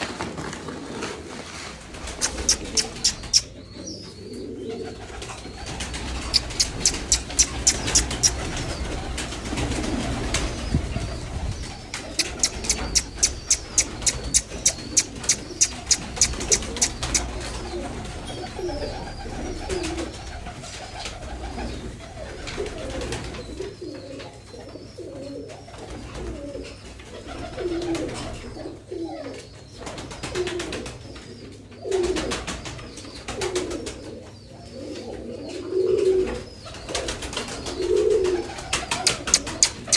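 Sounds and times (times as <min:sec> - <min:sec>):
pigeons cooing: 0:00.0 - 0:39.9
sharp rapid clicks: 0:02.2 - 0:03.5, 0:06.2 - 0:08.4, 0:11.9 - 0:17.3, 0:38.9 - 0:39.9.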